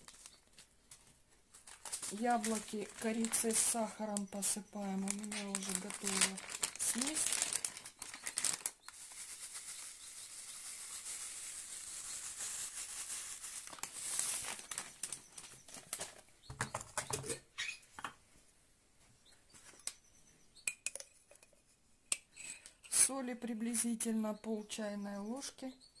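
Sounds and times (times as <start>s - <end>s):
sugar trickling from a bag: 0.0s - 0.5s, 1.6s - 16.2s
plastic bag rustling: 0.0s - 16.3s
bowls and glass jar clicking: 20.6s - 21.5s.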